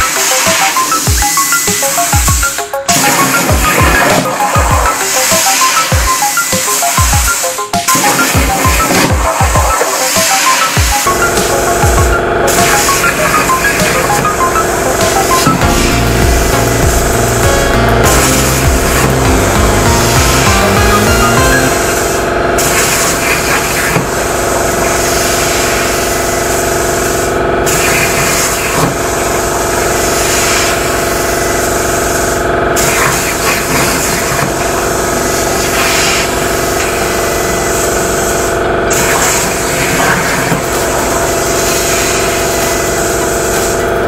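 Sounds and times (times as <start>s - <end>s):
machine hum: 0.0s - 44.0s.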